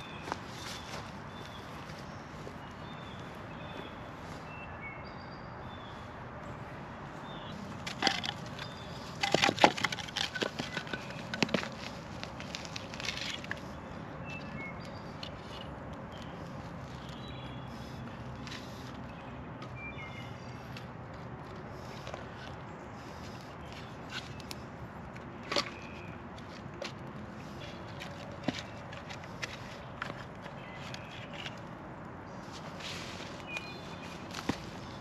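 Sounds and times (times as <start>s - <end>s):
wooden logs knocking: 7.8s - 12.0s.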